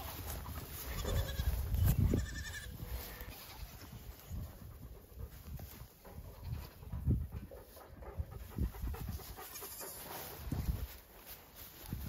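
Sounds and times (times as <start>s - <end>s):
baby goats bleating: 0.8s - 4.0s
dog panting softly: 4.1s - 11.2s.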